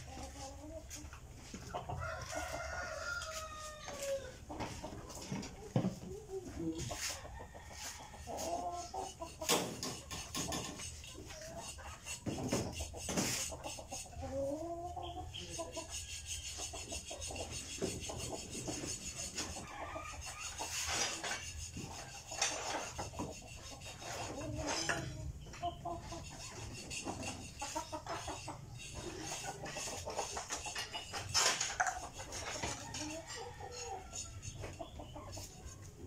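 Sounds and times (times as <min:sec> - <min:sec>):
chickens clucking: 0:00.0 - 0:36.0
file scraping metal blade: 0:08.3 - 0:14.1, 0:15.1 - 0:36.0.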